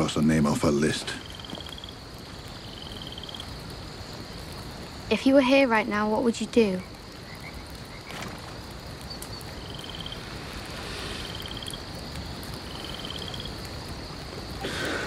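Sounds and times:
steady hiss: 0.0s - 15.0s
frog trilling: 9.5s - 10.3s.

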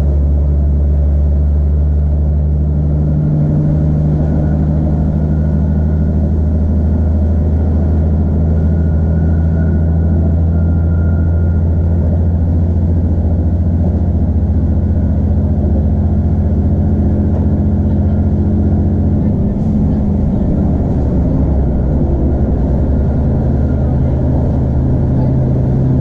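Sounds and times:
train diesel drone: 0.0s - 26.0s
faint thin whine: 8.5s - 13.2s.

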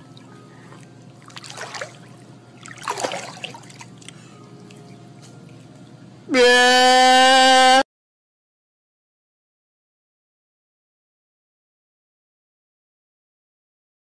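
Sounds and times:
pool water splashing: 0.0s - 5.0s.

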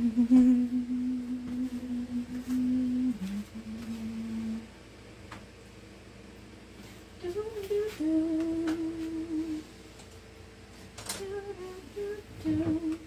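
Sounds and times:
woman humming: 0.0s - 4.7s, 7.2s - 9.7s.

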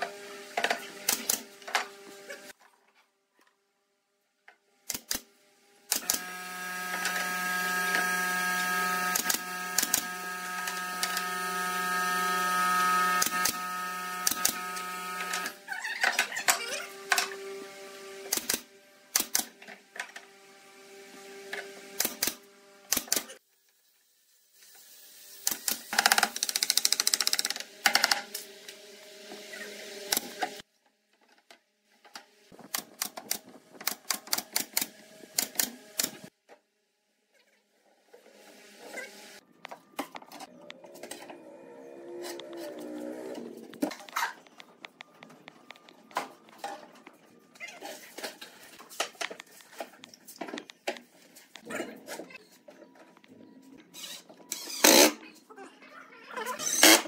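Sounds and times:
nail gun firing into wood: 18.3s - 19.5s.

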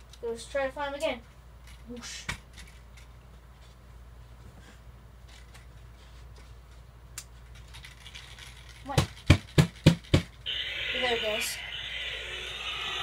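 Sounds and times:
low hum: 10.4s - 13.0s.

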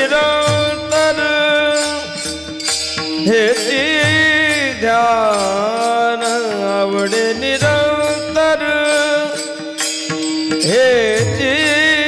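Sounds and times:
man singing a wavering note: 0.0s - 9.9s
small hand cymbals clashing: 0.0s - 12.0s
sustained accompaniment: 0.0s - 12.0s.

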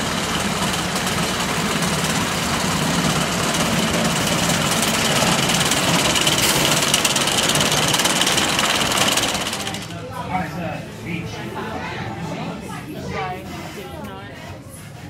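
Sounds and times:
roller coaster lift chain rattling: 0.0s - 10.1s.

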